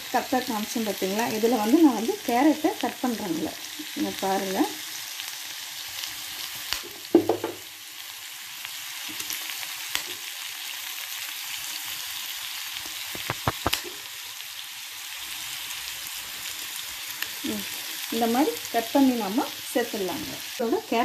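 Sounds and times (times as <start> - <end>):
vegetables sizzling in oil: 0.0 - 21.0
knife slicing raw carrot: 13.1 - 13.8.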